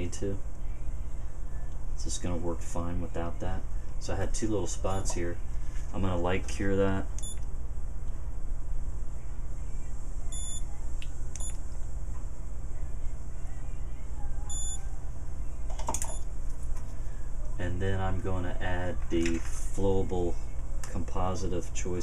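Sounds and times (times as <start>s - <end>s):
steady low hum: 0.0s - 22.0s
short high beeps: 10.3s - 10.6s, 14.5s - 14.8s.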